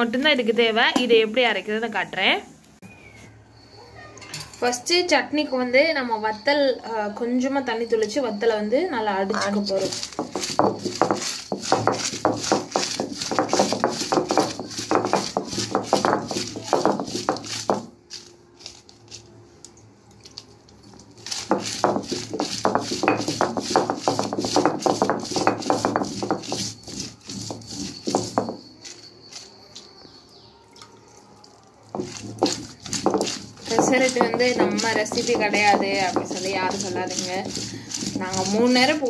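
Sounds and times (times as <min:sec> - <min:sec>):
stone pounding on stone slab: 0:09.5 - 0:18.0, 0:21.4 - 0:28.7, 0:31.9 - 0:39.0.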